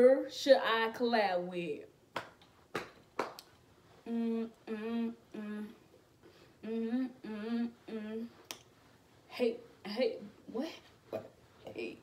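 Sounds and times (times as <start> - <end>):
woman humming a tune: 4.0 - 5.8, 6.6 - 8.4.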